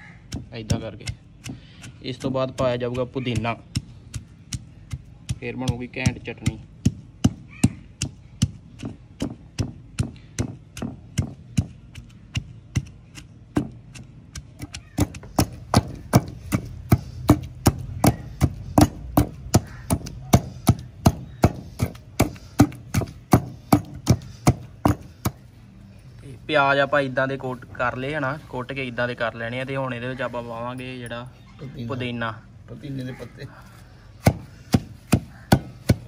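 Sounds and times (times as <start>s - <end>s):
pestle pounding in stone mortar: 0.2s - 25.5s, 34.2s - 36.0s.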